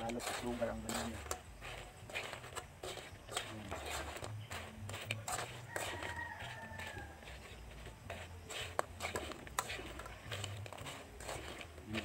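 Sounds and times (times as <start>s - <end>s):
spatula scraping in pan: 0.0s - 12.0s
rooster crowing: 5.5s - 7.5s.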